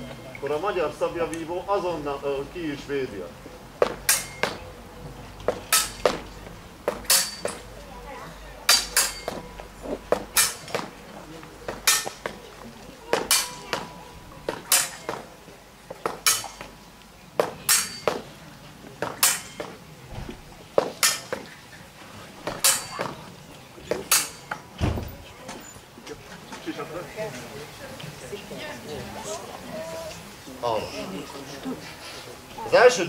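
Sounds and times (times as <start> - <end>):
sabre blades clashing: 4.0 - 4.6, 5.7 - 6.2, 6.9 - 7.6, 8.7 - 9.4, 10.2 - 10.9, 11.7 - 12.4, 13.1 - 13.9, 14.5 - 15.2, 16.2 - 16.7, 17.7 - 18.2, 19.1 - 19.7, 21.0 - 21.4, 22.5 - 23.2, 24.1 - 24.6.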